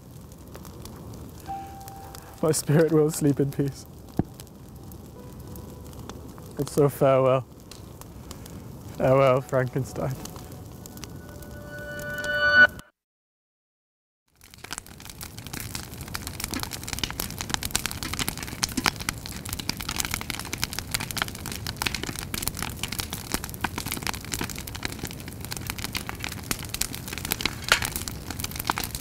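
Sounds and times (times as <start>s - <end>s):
fire crackling and popping: 0.0s - 12.5s, 14.3s - 29.0s
low rumble of burning: 0.0s - 12.5s, 14.3s - 29.0s
sparks snapping: 14.4s - 29.0s.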